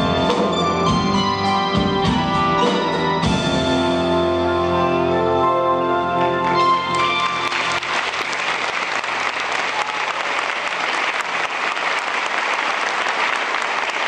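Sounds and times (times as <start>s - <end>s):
audience applauding: 6.4s - 14.0s.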